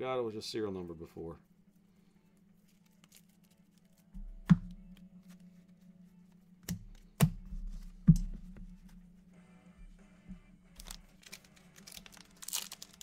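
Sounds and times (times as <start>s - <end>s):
trading cards flipped and sorted: 2.5s - 8.3s, 10.7s - 13.0s
cards clicking set down: 2.7s - 5.4s
steady low hum: 4.1s - 12.4s.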